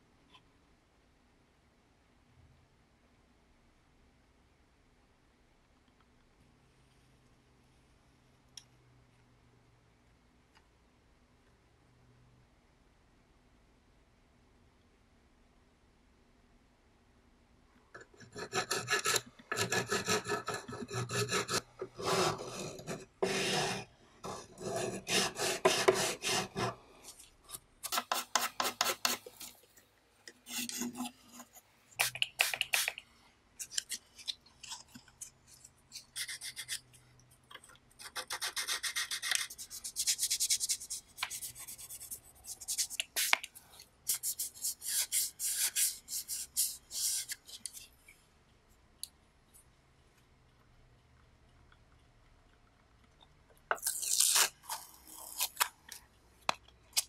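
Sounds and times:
needle file rasping metal: 0:18.2 - 0:26.8.

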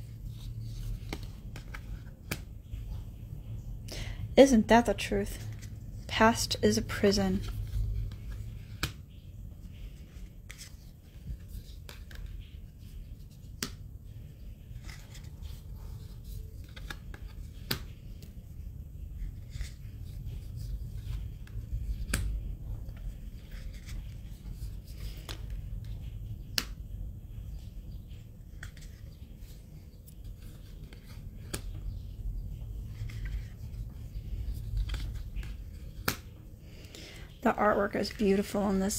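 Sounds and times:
cards sliding and rubbing: 0:00.0 - 0:03.0, 0:07.4 - 0:26.7, 0:28.1 - 0:36.8
low steady rumble: 0:00.0 - 0:38.9.

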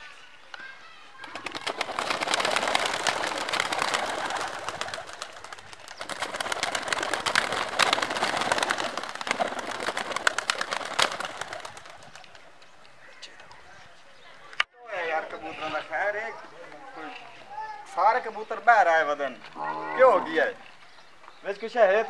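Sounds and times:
pigeon wings flapping: 0:01.2 - 0:12.6.

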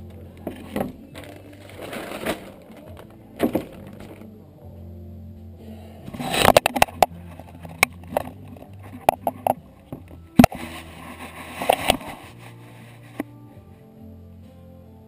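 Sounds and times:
plastic sheeting crackling: 0:00.4 - 0:04.2.

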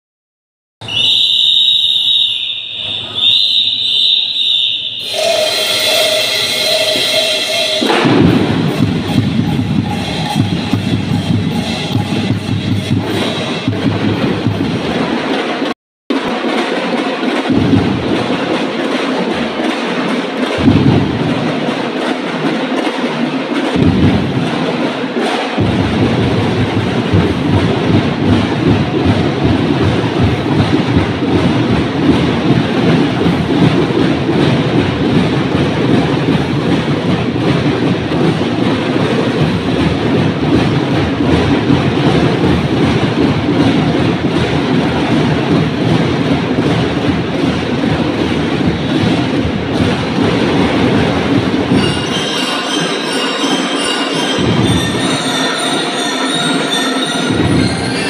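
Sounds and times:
shrill whistle blasts: 0:00.8 - 0:08.2, 0:51.8 - 0:58.0
drum corps with drums and cymbals: 0:00.8 - 0:58.0.

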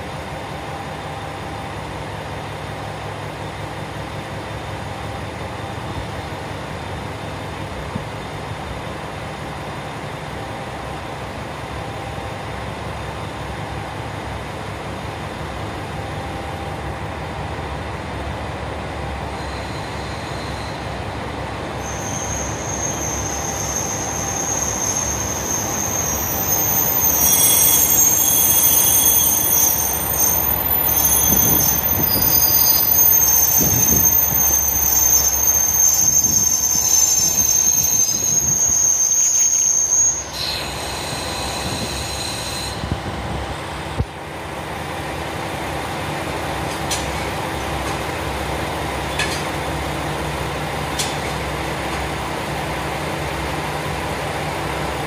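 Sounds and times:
train wheels squealing: 0:19.2 - 0:43.4, 0:46.4 - 0:52.1.

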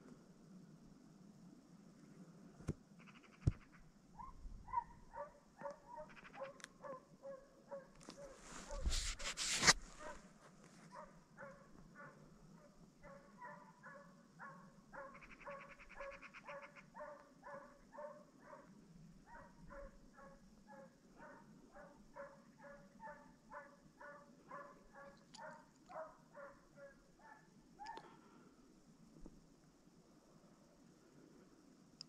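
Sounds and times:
hound baying faintly: 0:04.2 - 0:28.4
rustle on microphone: 0:08.0 - 0:11.0.

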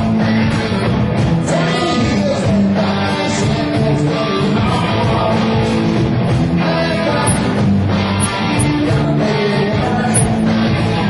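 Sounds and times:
amplified guitar: 0:00.0 - 0:11.0
bass guitar: 0:00.0 - 0:11.0
drum kit with cymbals: 0:10.1 - 0:10.4.

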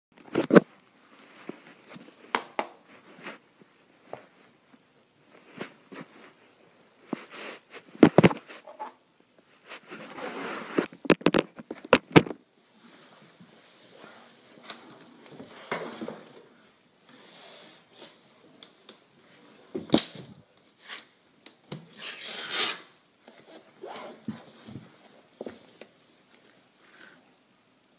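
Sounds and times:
recorder handling rustle: 0:09.6 - 0:12.4.

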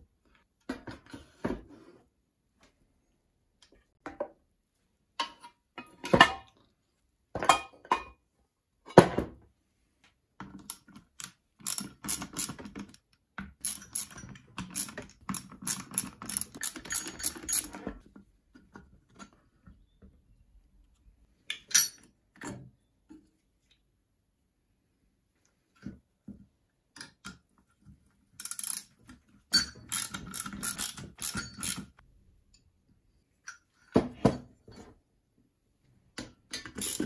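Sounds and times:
socket ratchet clicking: 0:29.9 - 0:31.9.

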